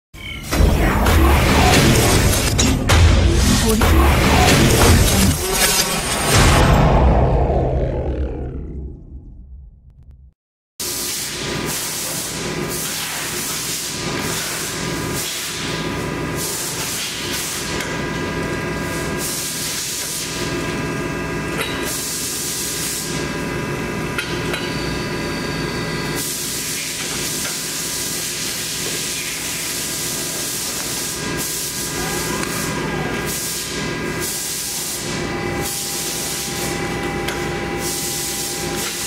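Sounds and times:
machine motors humming: 0.3s - 10.2s, 35.0s - 39.0s.

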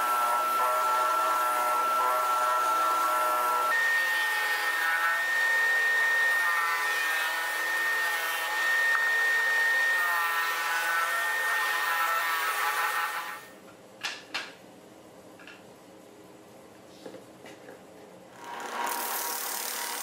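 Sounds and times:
disc sander motor whine: 7.7s - 10.0s.

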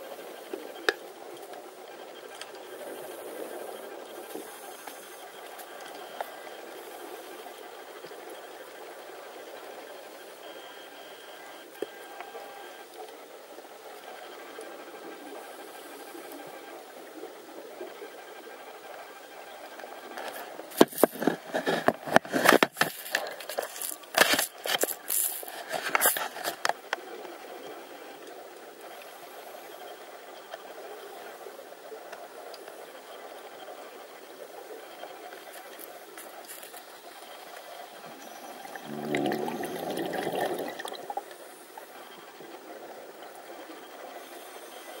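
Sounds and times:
faint steady hiss: 0.0s - 45.0s
underwater bubbles gurgling: 34.4s - 44.4s.

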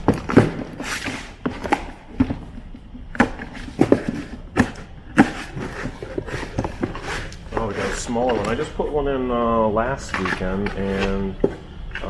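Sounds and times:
cardboard flaps rustling: 0.0s - 8.7s.

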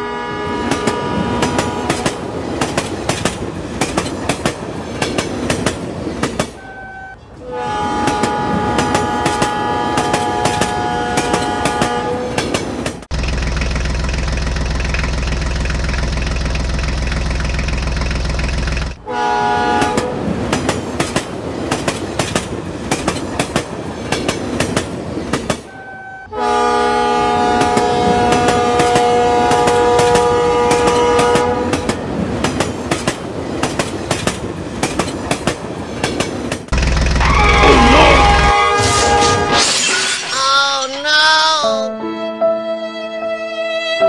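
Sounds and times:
toy train horn: 0.0s - 2.2s, 6.6s - 12.4s, 19.0s - 20.1s, 25.7s - 31.8s, 37.2s - 39.6s.

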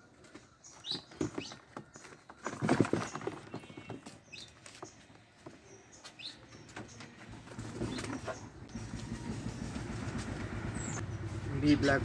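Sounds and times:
pigeons scrabbling and fluttering: 0.8s - 4.5s, 6.8s - 11.0s.

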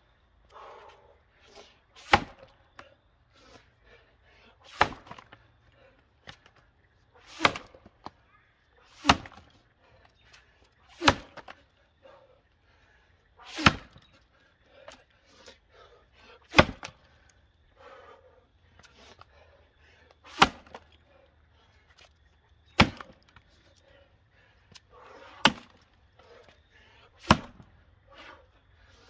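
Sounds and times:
axe chopping log: 2.0s - 2.5s, 4.7s - 5.4s, 7.3s - 7.9s, 9.0s - 9.5s, 11.0s - 11.6s, 13.5s - 14.0s, 16.5s - 17.0s, 20.3s - 20.8s, 22.7s - 23.3s, 25.4s - 25.8s, 27.2s - 27.6s.

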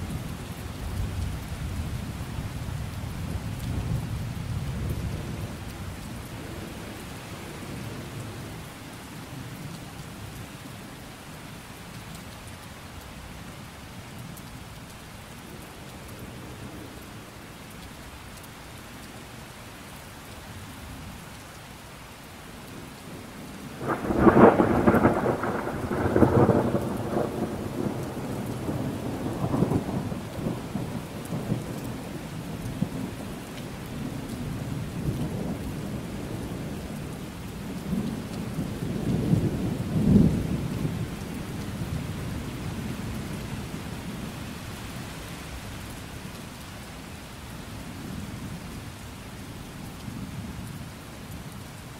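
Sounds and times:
steady rain: 0.0s - 51.9s
thunderclap rolling: 23.8s - 28.0s.

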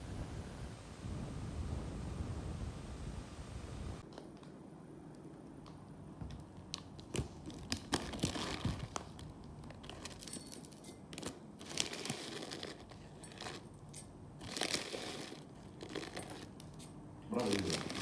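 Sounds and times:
plastic bag crinkling: 7.0s - 13.7s, 14.4s - 16.7s, 17.3s - 18.0s
spoon scooping dry cereal: 11.6s - 13.7s, 14.4s - 18.0s.

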